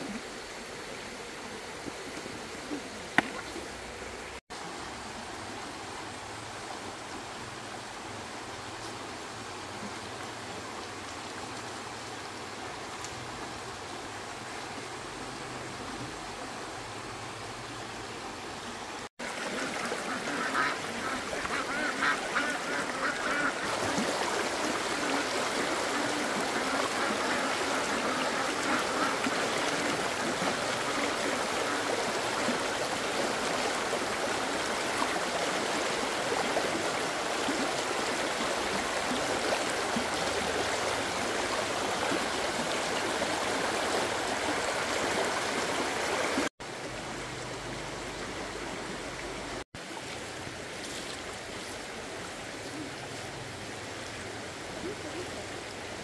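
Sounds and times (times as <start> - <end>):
running water: 0.0 - 56.0
ducks quacking: 19.4 - 32.0.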